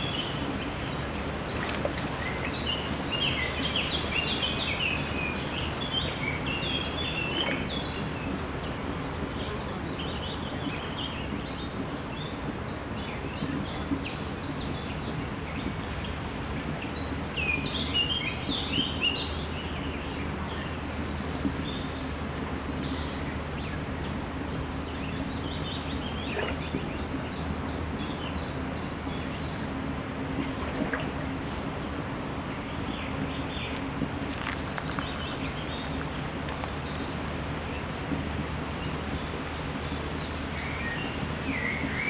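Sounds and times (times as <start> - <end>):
small birds chirping: 32.5 - 42.0.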